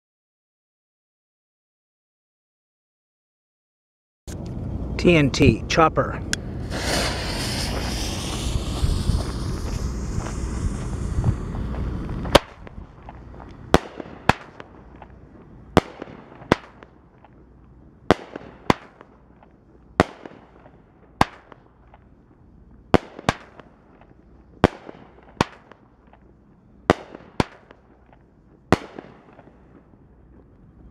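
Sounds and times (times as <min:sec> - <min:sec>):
fireworks bangs: 0:06.4 - 0:17.4, 0:18.0 - 0:21.7, 0:26.9 - 0:30.5.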